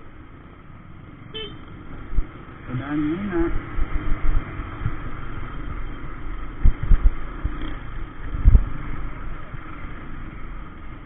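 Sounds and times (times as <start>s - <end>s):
motorbike engine and road rumble: 0.0s - 11.0s
wind noise on microphone: 3.3s - 9.6s.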